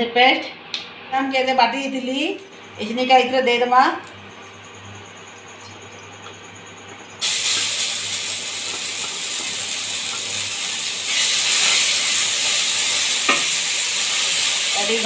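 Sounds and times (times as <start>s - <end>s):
paste sizzling in hot oil: 7.2s - 15.0s.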